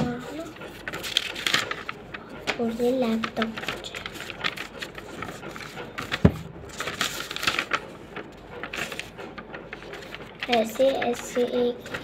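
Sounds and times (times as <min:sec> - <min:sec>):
paper rustling and crinkling: 0:00.0 - 0:12.0.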